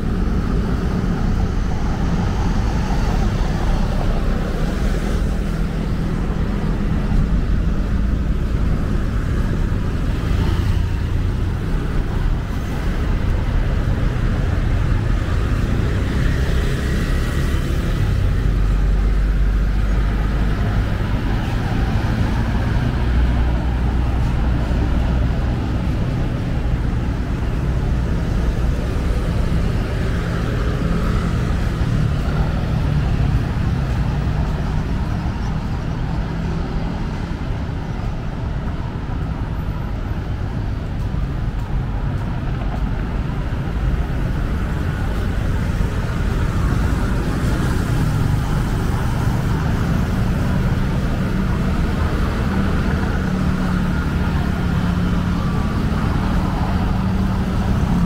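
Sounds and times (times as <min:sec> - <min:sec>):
car engines running: 0:00.0 - 0:58.0.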